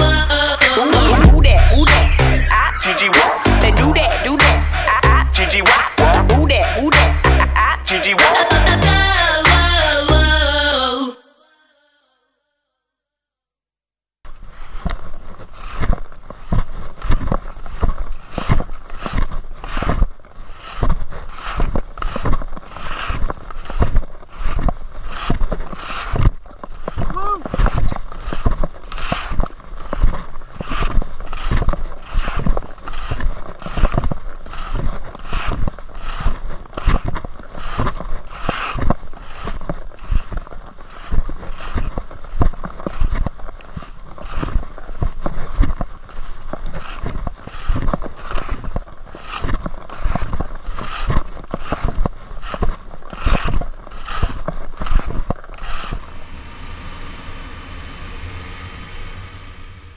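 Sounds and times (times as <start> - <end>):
skis scraping over snow: 2.0 - 6.0, 14.3 - 59.9
motorcycle riding: 55.0 - 59.9.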